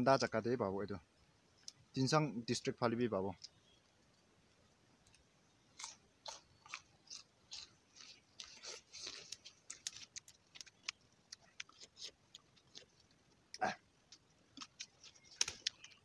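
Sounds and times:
crunching plant stem chewed: 0:05.1 - 0:16.0.

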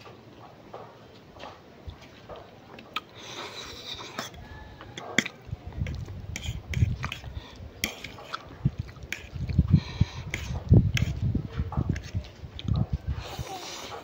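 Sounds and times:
chewing noodles: 0:01.9 - 0:14.0
fork scraping ceramic plate: 0:03.3 - 0:08.5, 0:09.1 - 0:09.4, 0:10.0 - 0:11.2.

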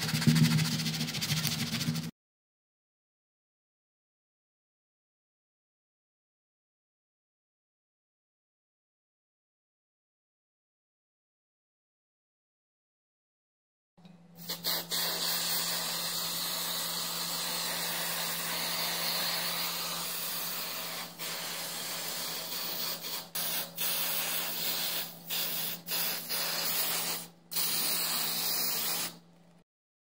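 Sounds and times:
aerosol spray can hissing: 0:14.4 - 0:29.2.

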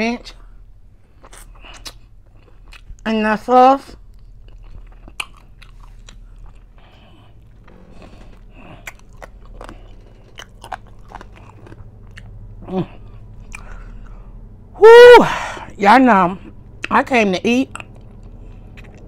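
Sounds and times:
person chewing crunchy food: 0:01.0 - 0:03.0, 0:04.0 - 0:07.7, 0:08.6 - 0:14.3, 0:17.7 - 0:19.0.

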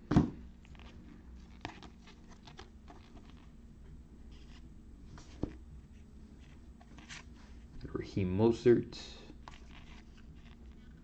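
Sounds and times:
cards ticking and rustling: 0:00.7 - 0:03.5, 0:09.4 - 0:11.0.

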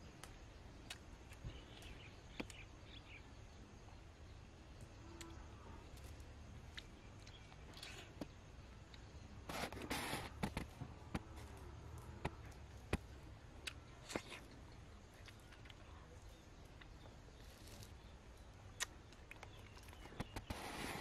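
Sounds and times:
person chewing juicy fruit: 0:00.1 - 0:02.6, 0:05.2 - 0:21.0.

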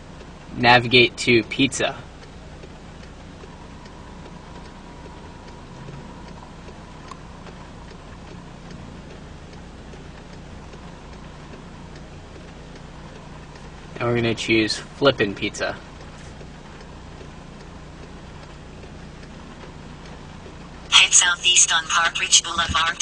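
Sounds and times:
car cabin low hum: 0:00.0 - 0:23.0
raindrops ticking on car: 0:00.0 - 0:23.0.

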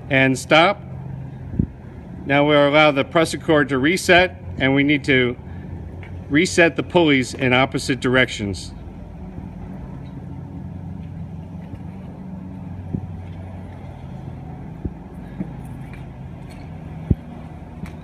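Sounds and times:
low mechanical hum: 0:00.0 - 0:18.0
metal hardware clicks and knocks: 0:15.2 - 0:17.1.

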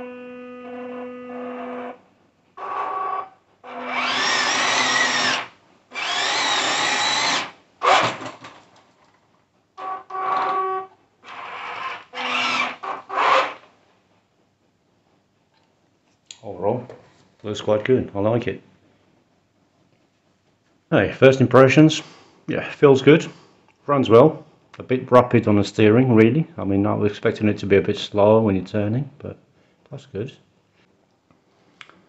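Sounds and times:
toy tank electric motors whining: 0:00.0 - 0:02.0, 0:02.6 - 0:08.3, 0:09.8 - 0:13.7.

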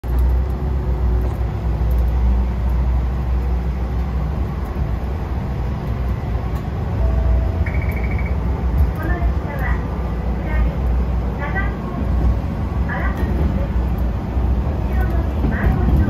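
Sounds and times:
railcar diesel engine drone: 0:00.0 - 0:16.0.

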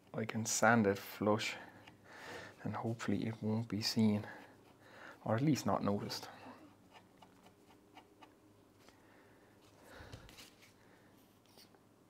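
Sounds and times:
faint low hum: 0:00.0 - 0:12.0
soft rustle: 0:06.0 - 0:11.8.

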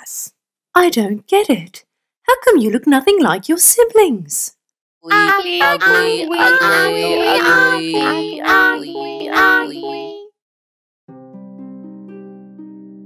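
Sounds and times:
high-pitched cartoon duckling voices: 0:05.0 - 0:10.3
held music note: 0:05.1 - 0:10.2.

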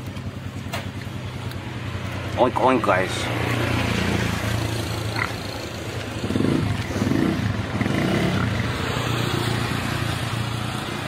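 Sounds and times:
pigs grunting: 0:05.1 - 0:05.5.

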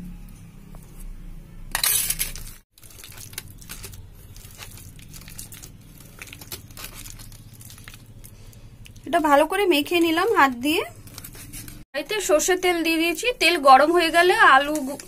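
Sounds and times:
hand mixing sticky batter: 0:02.7 - 0:11.8.

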